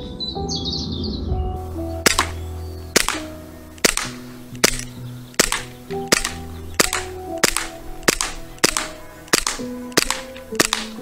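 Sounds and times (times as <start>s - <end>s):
background music: 0.0s - 11.0s
bb pistol shots: 1.9s - 11.0s.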